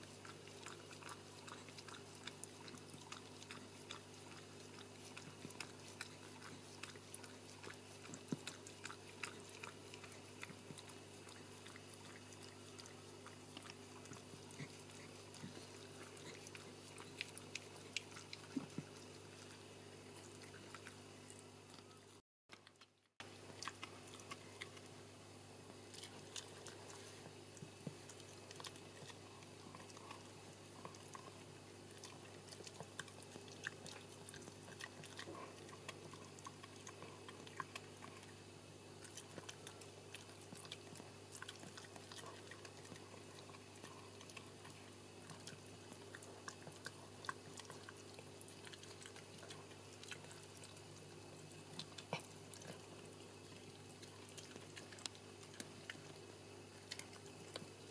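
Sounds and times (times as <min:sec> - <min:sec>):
dog licking with wet smacks: 0:00.0 - 0:21.0
steady low hum: 0:00.0 - 0:57.9.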